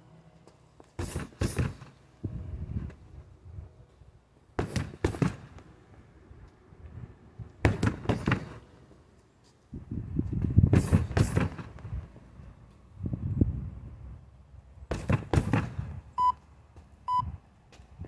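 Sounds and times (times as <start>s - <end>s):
strikes on heavy bag: 1.0s - 1.9s, 10.7s - 11.7s.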